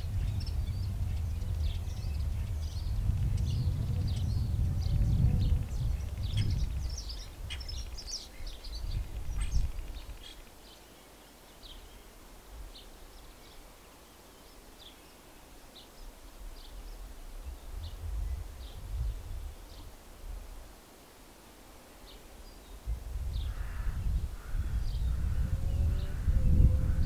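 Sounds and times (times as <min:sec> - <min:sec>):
wind rumble on microphone: 0:00.0 - 0:10.4, 0:16.4 - 0:20.8, 0:22.6 - 0:27.0
small birds chirping: 0:00.0 - 0:20.6, 0:21.9 - 0:27.0.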